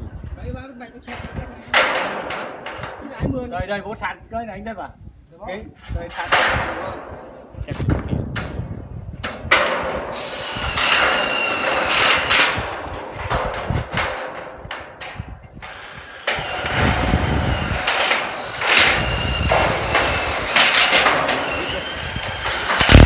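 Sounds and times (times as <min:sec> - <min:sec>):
knocks of steel sections: 0:01.1 - 0:03.2, 0:06.1 - 0:23.0
power drill driving screws: 0:10.1 - 0:13.7, 0:15.6 - 0:23.0.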